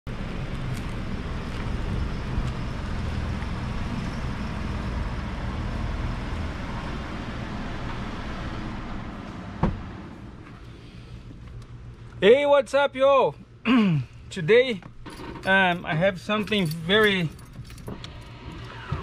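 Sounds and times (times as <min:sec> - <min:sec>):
pickup truck engine rumble: 0:00.1 - 0:12.1.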